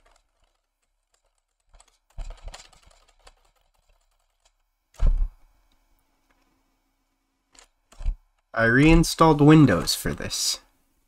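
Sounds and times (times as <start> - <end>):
keyboard keys clicking: 0.0 - 5.1
louder thump: 5.0 - 5.4.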